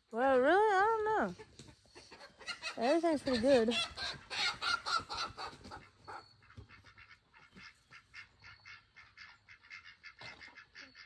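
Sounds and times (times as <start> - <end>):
fowl harsh calls: 3.4 - 11.0.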